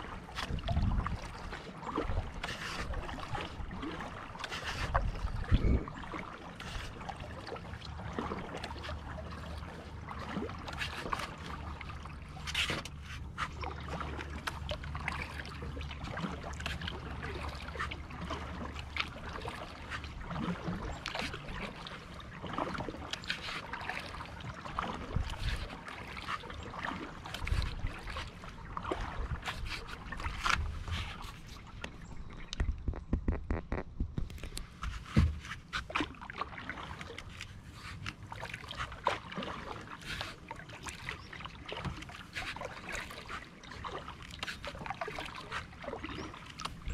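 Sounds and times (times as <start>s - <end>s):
paddle splashing in water: 0.0s - 46.9s
water dripping off paddle: 0.3s - 33.2s.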